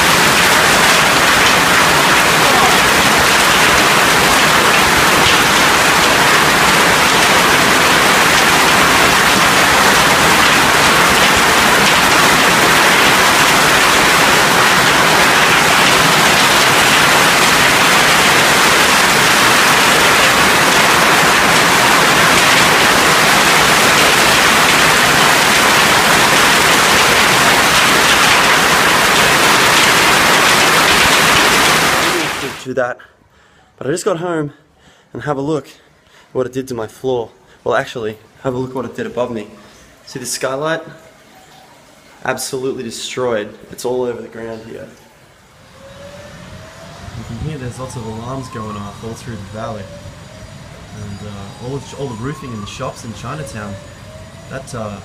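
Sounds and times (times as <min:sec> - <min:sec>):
hail and rain on pavement: 0:00.0 - 0:32.7
runoff pouring off awning: 0:00.0 - 0:32.7, 0:45.0 - 0:55.0.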